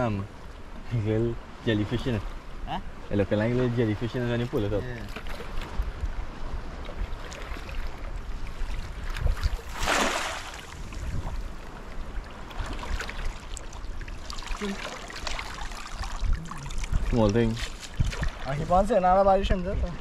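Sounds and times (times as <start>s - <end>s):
water sloshing and dripping: 6.8s - 19.0s
cast net splashing into water: 9.2s - 10.8s.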